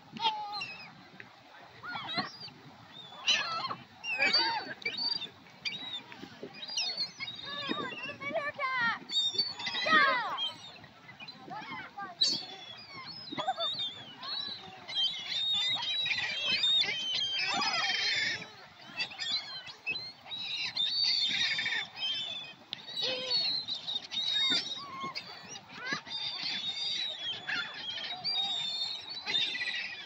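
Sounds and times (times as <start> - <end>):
gulls squawking and crying: 0.1 - 30.0.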